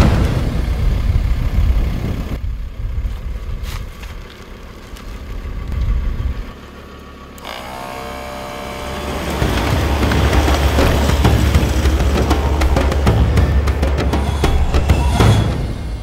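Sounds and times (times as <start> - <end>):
pickup engine and tyres on dirt: 0.0 - 15.3
low engine rumble: 0.0 - 16.0
steady humming whine: 0.8 - 16.0.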